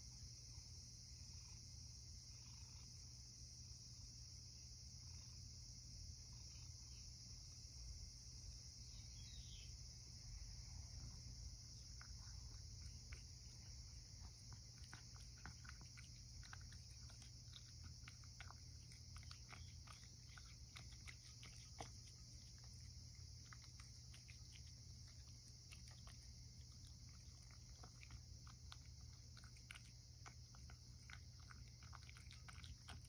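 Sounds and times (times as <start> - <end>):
faint high-pitched hiss: 0.0 - 33.0
cat eating from ceramic bowl: 10.5 - 33.0.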